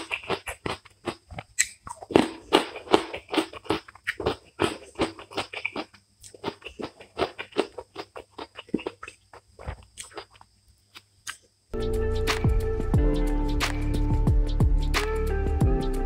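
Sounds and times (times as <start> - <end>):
wet chewing and lip-smacking: 0.0 - 11.5.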